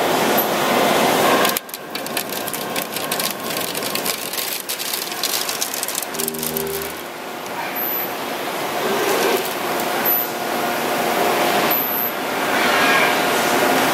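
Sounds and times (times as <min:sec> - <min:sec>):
coolant spraying and splashing: 0:00.2 - 0:07.1
machine clicking rattle: 0:01.4 - 0:07.1
brief pitched hum: 0:06.2 - 0:07.2.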